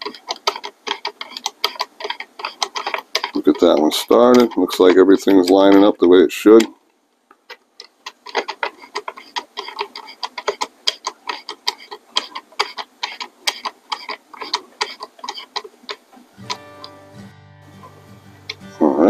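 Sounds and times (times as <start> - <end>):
screwdriver driving a screw: 0.0 - 5.9, 7.8 - 16.6.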